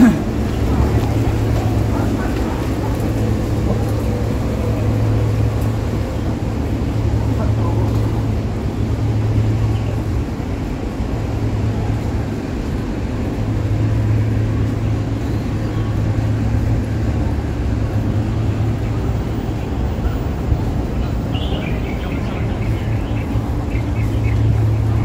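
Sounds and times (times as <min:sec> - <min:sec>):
urban outdoor noise: 0:00.0 - 0:25.0.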